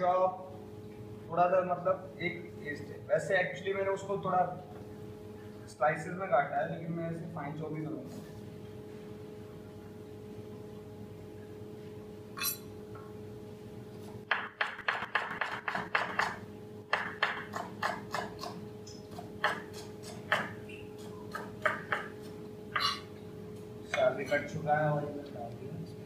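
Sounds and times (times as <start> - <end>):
steady hum: 0.0 - 26.0
knife chopping on plastic board: 14.3 - 22.2.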